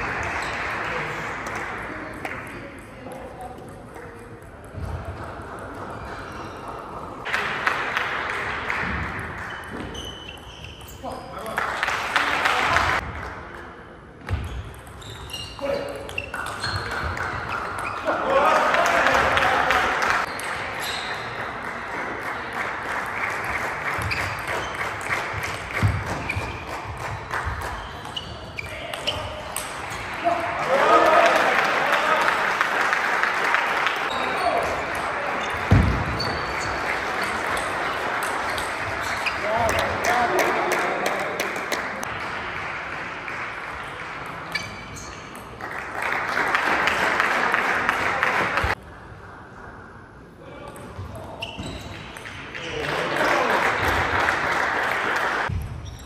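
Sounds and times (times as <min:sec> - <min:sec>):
applause in a large hall: 0:00.0 - 0:02.6, 0:07.2 - 0:09.5, 0:11.4 - 0:13.6, 0:16.8 - 0:27.8, 0:30.1 - 0:35.7, 0:39.6 - 0:44.5, 0:45.5 - 0:48.8, 0:52.2 - 0:55.5.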